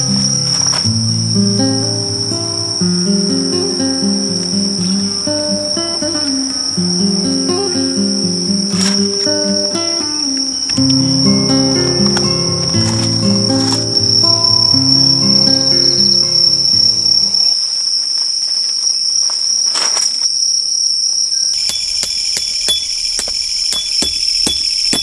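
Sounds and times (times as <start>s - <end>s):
crickets chirping: 0.0s - 25.0s
soft background music: 0.2s - 17.3s.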